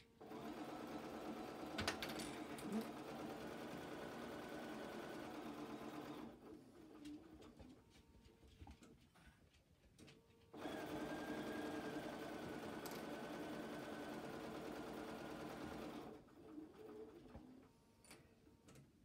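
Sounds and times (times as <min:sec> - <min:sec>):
sewing machine stitching: 0:00.2 - 0:07.3, 0:10.6 - 0:17.6.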